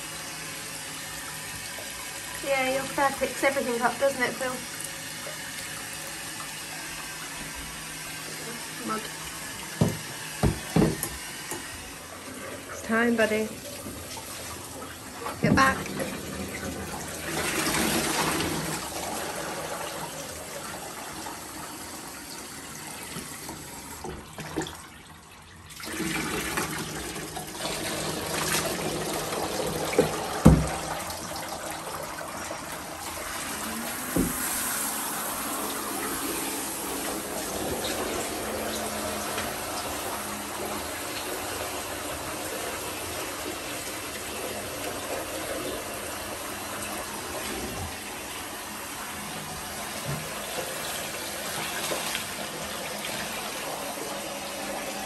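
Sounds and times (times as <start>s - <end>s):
shower head spraying water: 33.5s - 42.3s.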